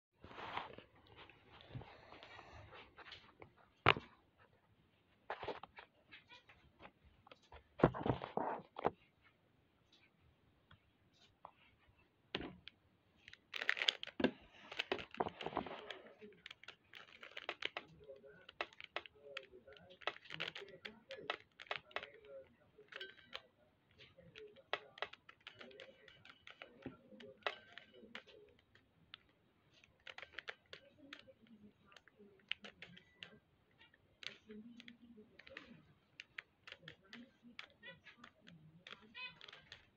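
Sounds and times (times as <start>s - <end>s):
puzzle cube clicking: 13.2s - 22.3s, 24.4s - 29.2s, 29.8s - 33.4s, 34.1s - 39.9s.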